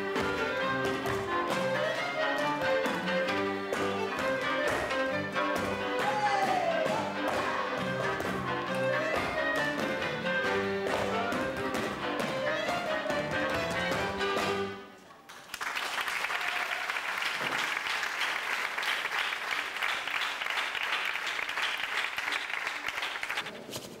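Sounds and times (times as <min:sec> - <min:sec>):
fiddle and double bass: 0:00.0 - 0:14.8
audience applauding: 0:15.3 - 0:23.5.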